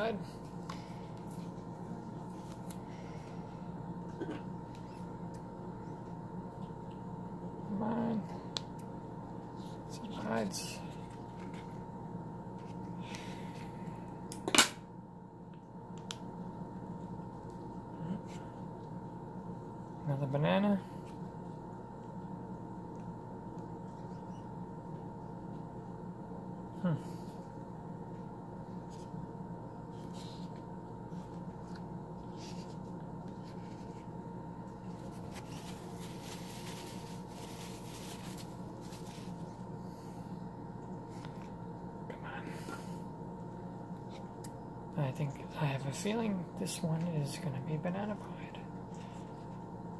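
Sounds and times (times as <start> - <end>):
steady hum: 0.0 - 49.9
faint scratchy rustling: 34.9 - 39.4.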